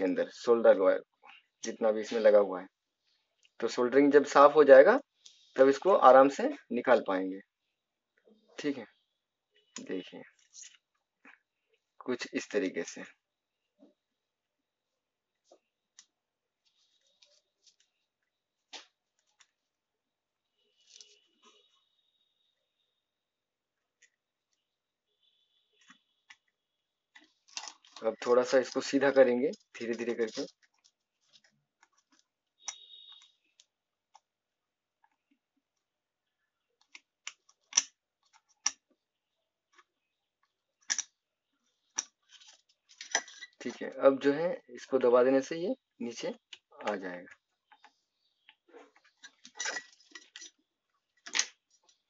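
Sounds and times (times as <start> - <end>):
faint clicks and scratchy crackles: 5.0 - 6.4, 15.3 - 19.8, 20.5 - 22.8, 23.7 - 44.0, 46.1 - 52.0.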